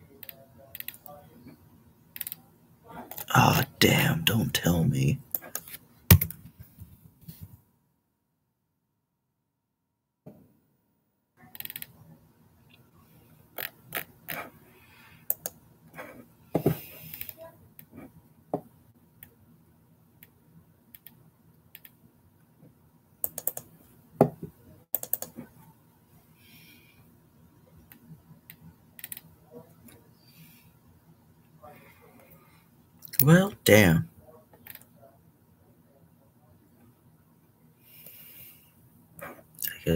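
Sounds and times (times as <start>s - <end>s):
keyboard and mouse clicks: 15.3s - 15.6s, 20.9s - 22.0s, 23.2s - 23.7s, 24.9s - 25.4s.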